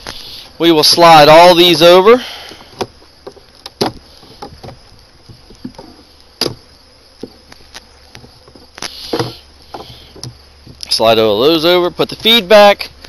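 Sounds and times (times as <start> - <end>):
faint buzz of bees: 0.0 - 13.0
wooden frames sliding: 8.1 - 10.9.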